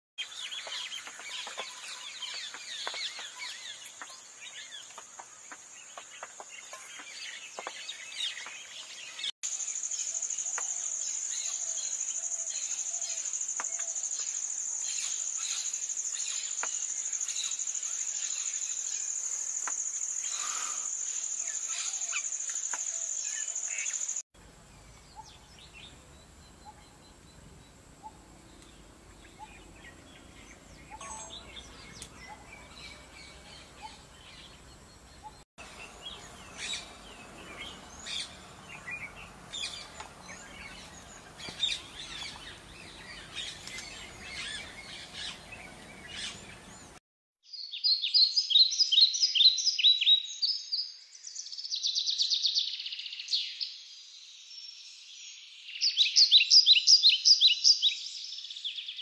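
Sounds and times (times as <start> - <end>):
bulbul calls and chattering: 21.4 - 47.0.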